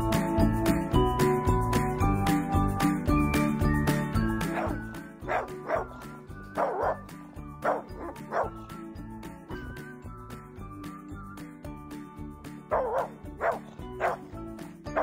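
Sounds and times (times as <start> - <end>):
background music: 0.0 - 15.0
small dog yipping: 4.5 - 5.9, 6.6 - 7.0, 7.7 - 8.6, 12.7 - 14.2.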